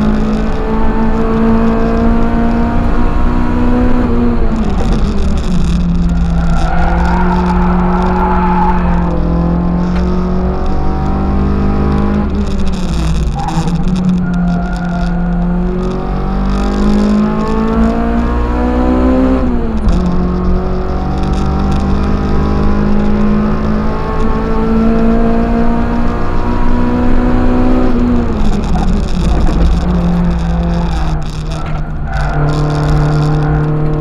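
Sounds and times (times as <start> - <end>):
race car engine revving: 0.0 - 34.0.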